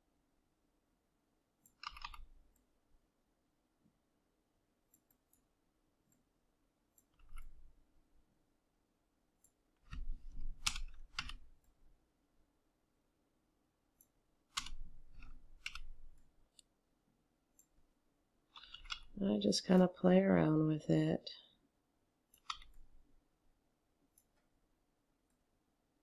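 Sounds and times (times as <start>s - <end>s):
computer mouse and keyboard clicks: 1.6s - 2.7s, 6.9s - 7.7s, 9.4s - 11.8s, 14.0s - 16.7s, 18.5s - 19.2s, 22.3s - 23.0s.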